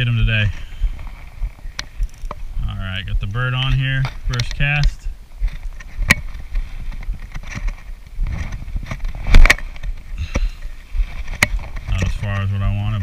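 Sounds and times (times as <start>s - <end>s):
fishing reel clicks: 2.0s - 2.4s
shirt rustling against camera: 5.4s - 13.0s.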